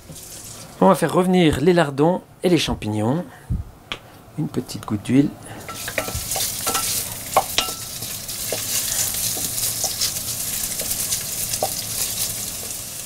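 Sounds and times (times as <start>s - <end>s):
wooden spatula scraping a pan: 5.6s - 12.8s
meat sizzling in a pan: 5.6s - 13.0s.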